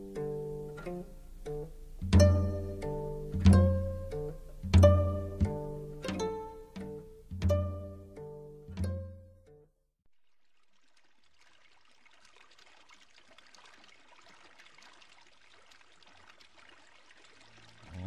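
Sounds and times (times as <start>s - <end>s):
faint trickling water: 10.1s - 18.0s.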